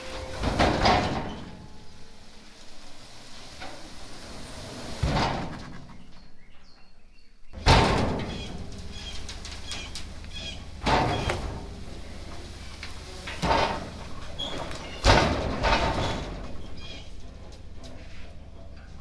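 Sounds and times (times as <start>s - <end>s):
logs shifting and sliding: 0.0s - 6.8s, 7.6s - 19.0s
bird chirps: 5.7s - 7.6s
hydraulic pump humming: 7.6s - 19.0s.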